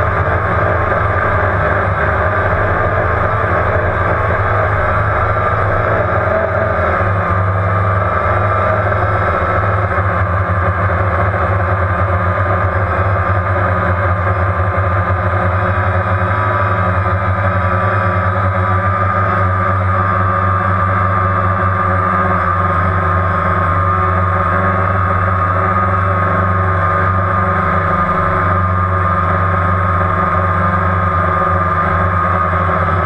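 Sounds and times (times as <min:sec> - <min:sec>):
drone propellers buzzing: 0:00.0 - 0:33.0.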